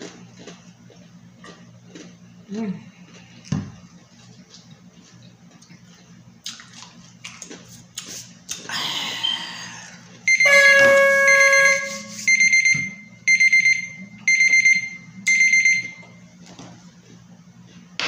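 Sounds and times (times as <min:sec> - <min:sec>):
short electronic beeps: 0:10.3 - 0:16.0
timer alarm long tone: 0:10.3 - 0:16.1.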